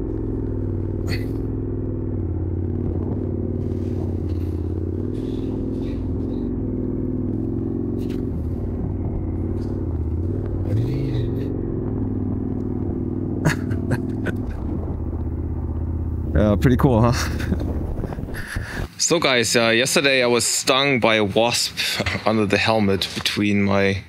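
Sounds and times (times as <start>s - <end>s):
motorcycle engine at low revs: 0.0s - 19.0s.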